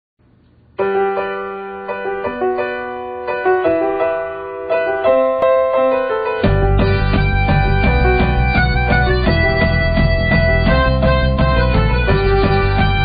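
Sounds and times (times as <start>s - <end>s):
slow piano melody: 0.7s - 13.0s.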